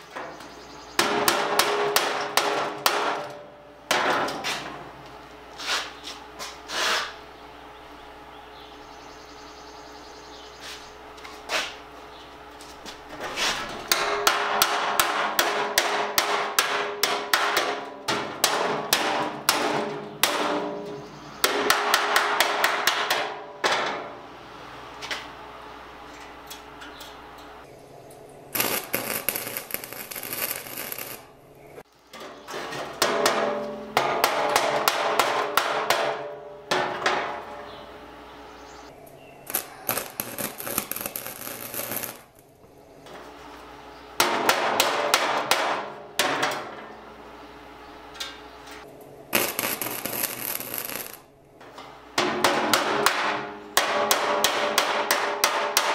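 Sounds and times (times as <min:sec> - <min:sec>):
arc welding crackling: 0:28.5 - 0:32.0, 0:39.0 - 0:42.5, 0:48.8 - 0:51.3.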